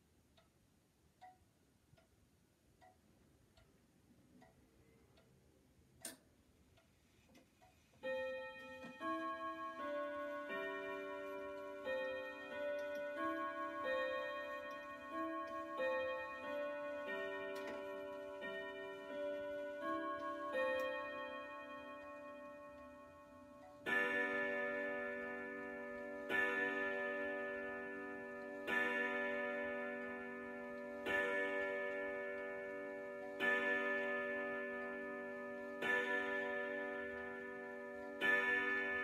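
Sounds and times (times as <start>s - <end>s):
wall clock ticking: 0.0s - 39.0s
clock chime melody: 8.0s - 39.0s.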